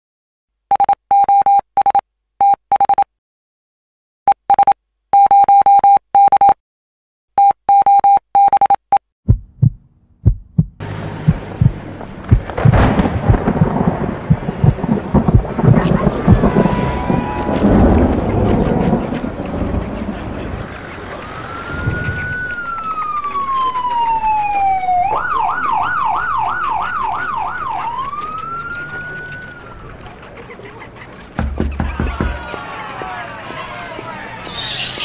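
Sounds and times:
heavy rain: 10.8 - 23.5
thunder rumbling: 10.8 - 25.9
electronic beeps: 25.0 - 32.4.

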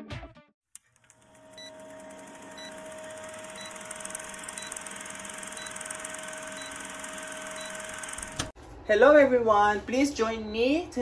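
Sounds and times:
film projector clatter: 0.9 - 8.5.

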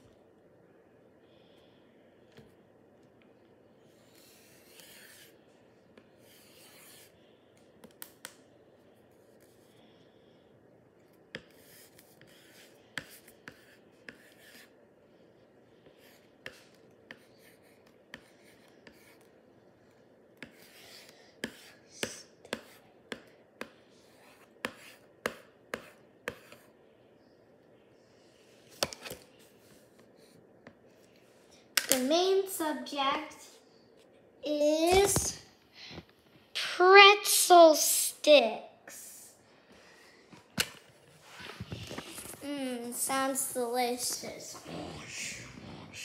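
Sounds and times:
pencil drawing strokes on paper: 3.8 - 8.0, 11.1 - 26.8.

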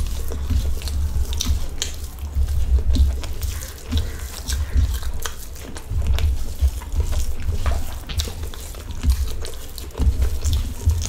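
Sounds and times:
hand squishing rice: 0.0 - 11.0
wet chewing and mouth smacking: 0.0 - 11.0.

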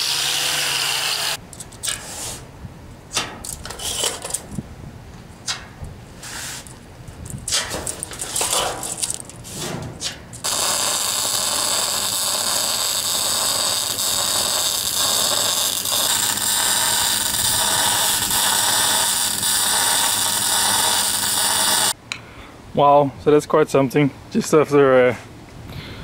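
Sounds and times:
handling sounds: 6.4 - 10.4
arc welding hiss: 10.4 - 22.0.

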